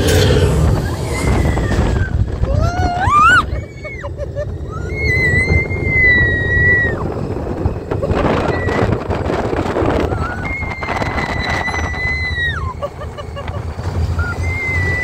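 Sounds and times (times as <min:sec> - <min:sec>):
ride car rumbling: 0:00.0 - 0:15.0
wind rushing over microphone: 0:00.0 - 0:15.0
girl screaming: 0:01.0 - 0:07.1.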